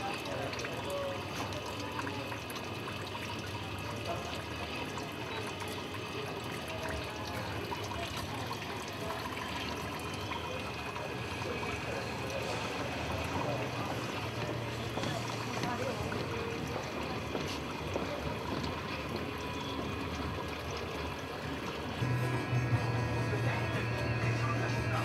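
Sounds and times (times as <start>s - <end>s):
water trickling into tank: 0.0s - 25.0s
low steady hum: 22.0s - 25.0s.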